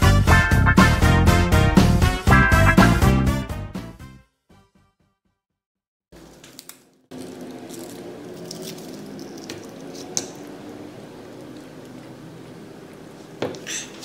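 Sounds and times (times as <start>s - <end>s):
low room hum: 6.2s - 14.0s.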